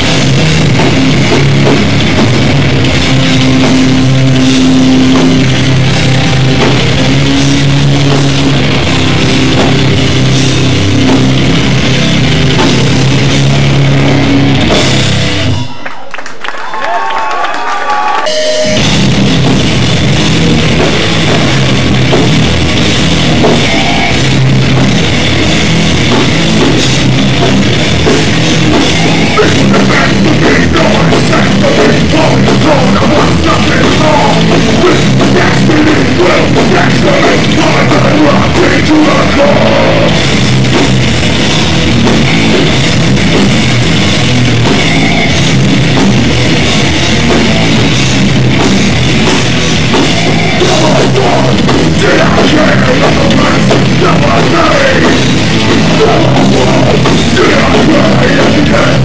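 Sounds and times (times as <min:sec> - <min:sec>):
hardcore band playing live: 0:00.0 - 0:16.5, 0:17.5 - 0:59.0
person shouting vocals: 0:55.9 - 0:59.0.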